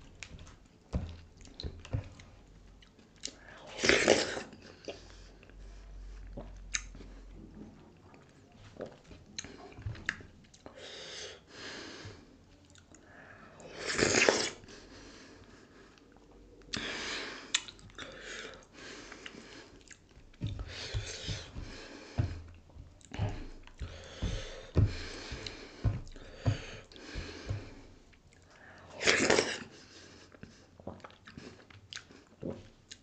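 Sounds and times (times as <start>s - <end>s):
chewing and wet mouth sounds: 0.0s - 10.7s, 12.5s - 14.8s, 15.4s - 33.0s
noisy breaths: 10.7s - 12.3s, 14.6s - 29.0s.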